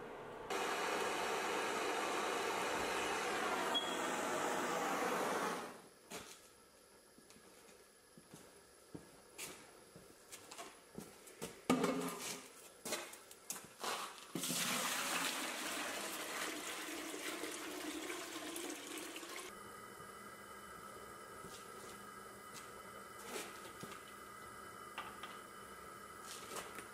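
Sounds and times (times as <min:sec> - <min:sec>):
water pouring into pot: 0:14.4 - 0:19.5.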